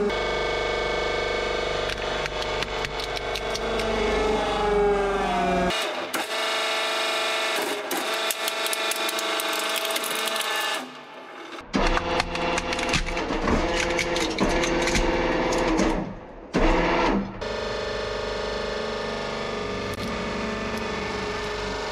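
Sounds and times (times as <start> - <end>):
hydraulic press whine: 0.0 - 21.9
toy car cracking and crunching: 7.6 - 10.9.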